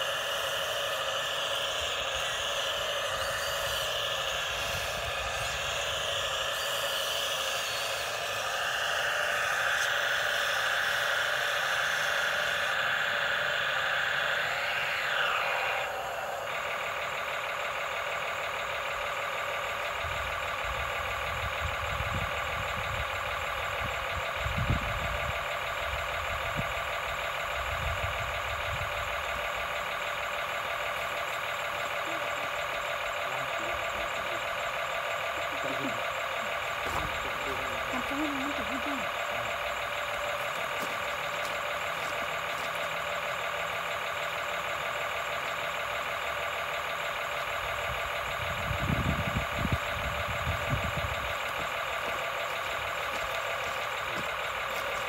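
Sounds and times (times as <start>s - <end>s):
electric gear motors whining: 0.0s - 55.0s.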